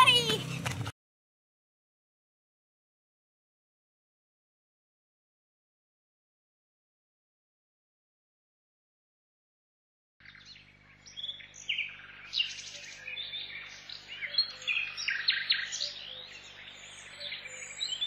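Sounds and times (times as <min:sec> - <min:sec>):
birds chirping: 0:00.0 - 0:00.9, 0:10.2 - 0:18.0.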